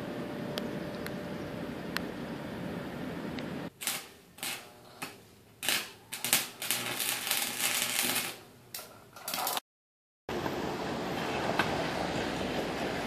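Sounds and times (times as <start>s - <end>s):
welding arc crackling: 3.7s - 9.6s.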